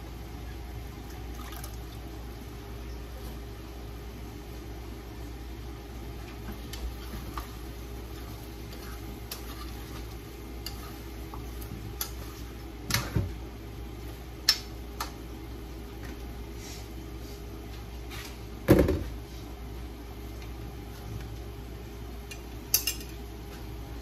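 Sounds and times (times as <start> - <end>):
steady hum: 0.0 - 24.0
utensil scraping frying pan: 6.9 - 12.5.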